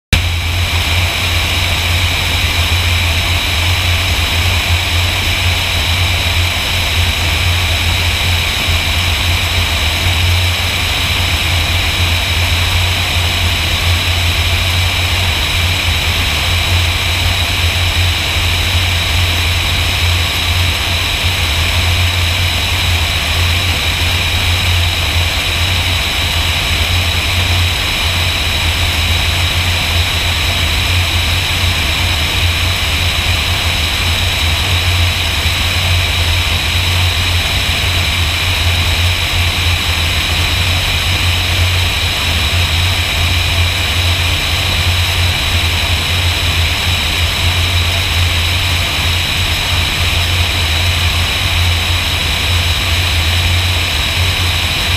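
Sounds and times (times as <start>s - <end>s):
propeller aircraft engine drone: 0.1s - 54.9s
rushing airflow hiss: 0.2s - 54.9s.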